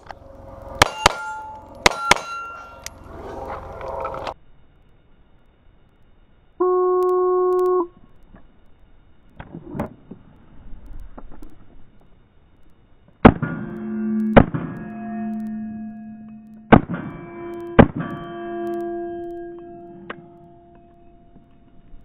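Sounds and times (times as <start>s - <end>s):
bullets ringing on steel plates: 0.8s - 2.9s
shot timer beep: 13.6s - 21.0s.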